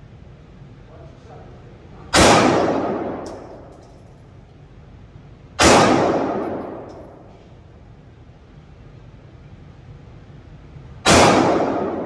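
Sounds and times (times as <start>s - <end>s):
pistol shots echoing indoors: 2.1s - 4.4s, 5.6s - 7.4s, 11.0s - 12.0s
light metallic clink: 3.1s - 4.4s, 6.3s - 7.4s.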